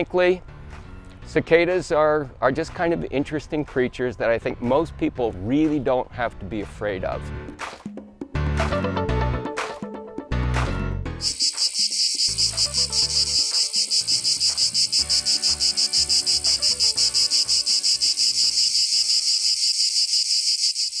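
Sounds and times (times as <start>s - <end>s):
cicadas buzzing: 11.2s - 21.0s.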